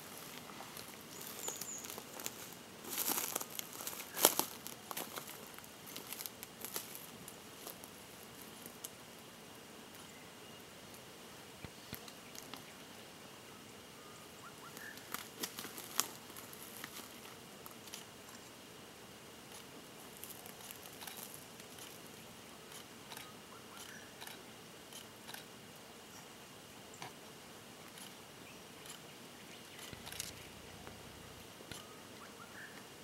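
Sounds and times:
crunches in dry leaf litter: 0:00.0 - 0:09.0, 0:14.7 - 0:18.4, 0:19.5 - 0:22.9.

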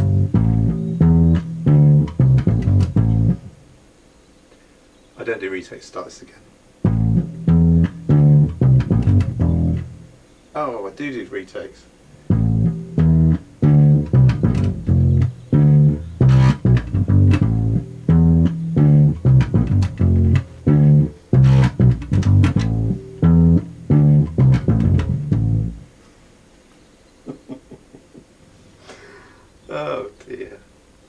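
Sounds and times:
plucked upright bass line: 0:00.0 - 0:03.6, 0:06.8 - 0:10.1, 0:12.2 - 0:25.9.

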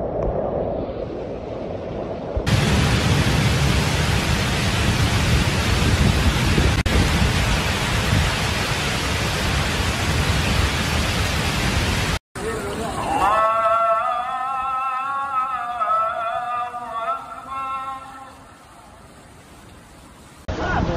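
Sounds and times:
heavy rain hissing: 0:02.5 - 0:14.2, 0:15.0 - 0:20.9
rushing floodwater: 0:02.5 - 0:14.2.

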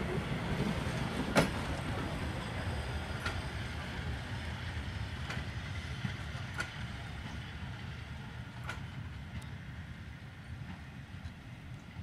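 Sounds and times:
train coaches rumbling: 0:00.0 - 0:12.0.

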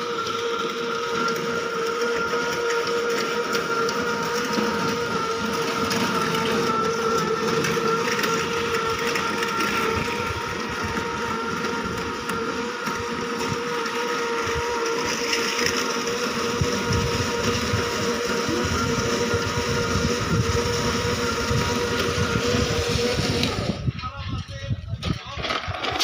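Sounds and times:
low rumble of wheels: 0:00.0 - 0:26.0
machine motor whining: 0:00.0 - 0:26.0.

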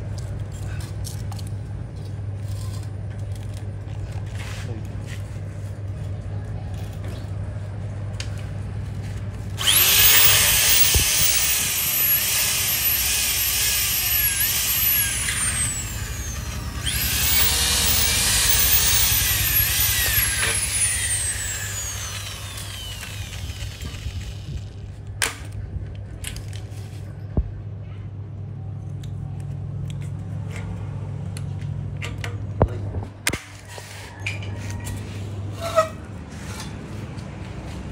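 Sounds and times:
electric drill boring metal: 0:09.6 - 0:24.8.

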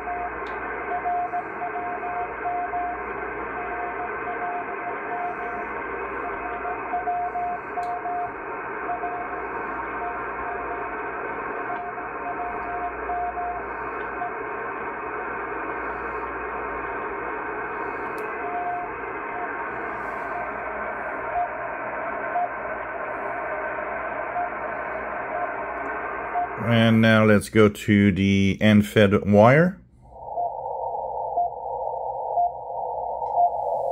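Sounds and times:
radio beat tone beeps: 0:00.0 - 0:14.4, 0:17.7 - 0:33.9
radio band noise and hiss: 0:00.0 - 0:33.9.

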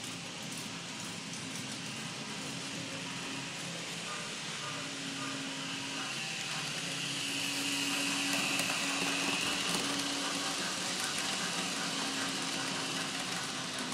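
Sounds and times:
model train motor whining: 0:01.0 - 0:13.9
wheels rolling on rails: 0:06.1 - 0:13.9.

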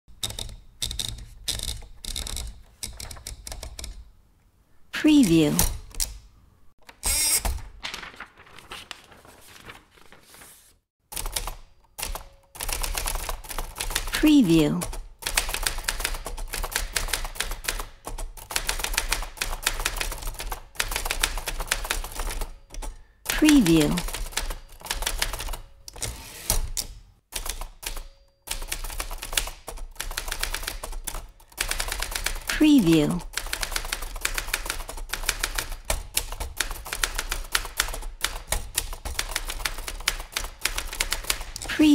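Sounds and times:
typewriter keys clacking: 0:00.1 - 0:04.0, 0:27.4 - 0:41.9
typewriter mechanical clatter: 0:33.3 - 0:41.7.

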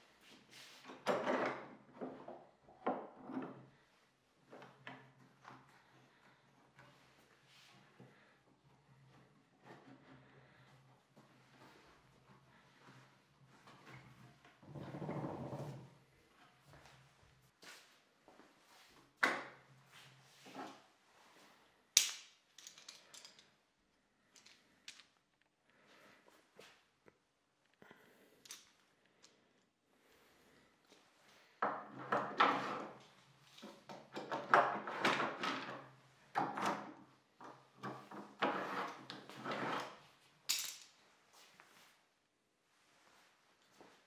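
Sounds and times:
clamps scraping and rattling: 0:37.8 - 0:40.0.

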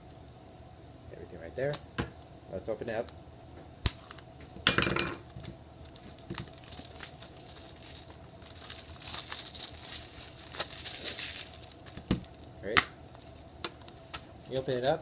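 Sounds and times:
plastic wrap crinkling: 0:05.2 - 0:15.0
plastic wrap tearing: 0:05.3 - 0:15.0.

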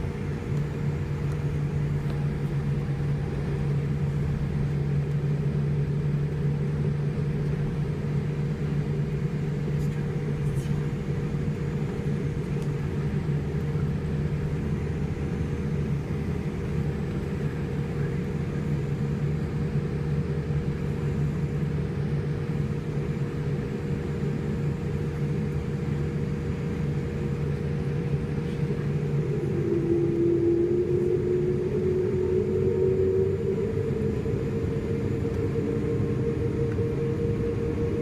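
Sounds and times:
airplane cabin hum: 0:00.0 - 0:38.0
jet engines spooling up: 0:09.2 - 0:38.0.

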